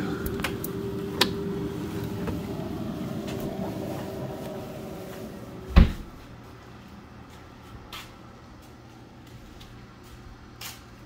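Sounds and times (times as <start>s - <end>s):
steady hum: 0.0s - 11.0s
heavy thump: 5.7s - 6.2s.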